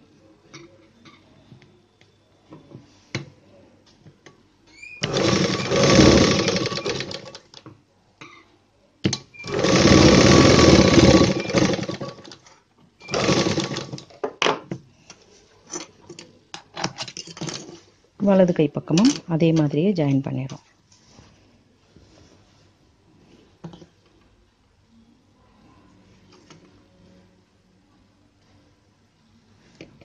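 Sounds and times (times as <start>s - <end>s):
electric sewing machine stitching: 5.0s - 7.4s, 9.4s - 12.4s, 13.0s - 14.1s.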